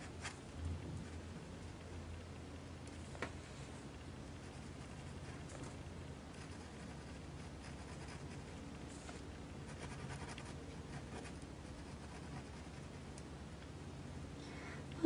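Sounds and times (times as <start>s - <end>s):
low steady hum: 0.0s - 15.0s
pen scratching on paper: 6.4s - 13.0s.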